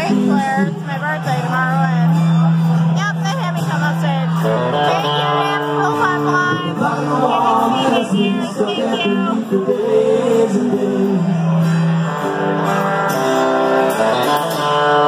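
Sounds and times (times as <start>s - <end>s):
live rock band playing: 0.0s - 15.0s
man singing: 5.2s - 11.6s.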